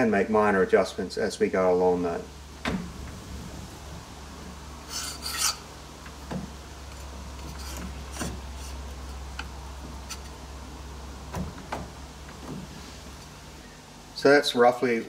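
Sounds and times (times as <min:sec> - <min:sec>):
steady low hum: 0:00.0 - 0:15.0
metal-on-metal scrapes: 0:04.8 - 0:05.7, 0:06.9 - 0:10.4.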